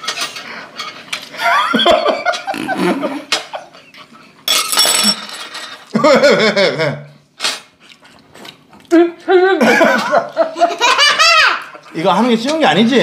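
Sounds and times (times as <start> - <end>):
man laughing: 1.4 - 3.9, 9.1 - 11.3
woman laughing: 9.3 - 11.5.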